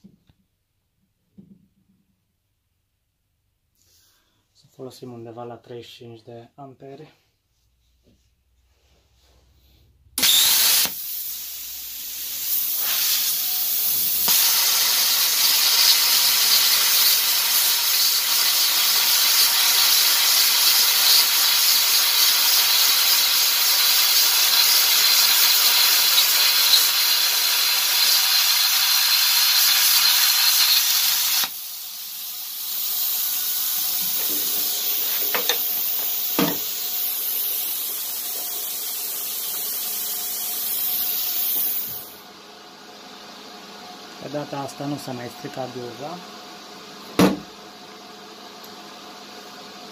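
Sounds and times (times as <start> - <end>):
plasma cutter arc hissing: 10.2 - 42.2
torch air hissing: 10.2 - 42.2.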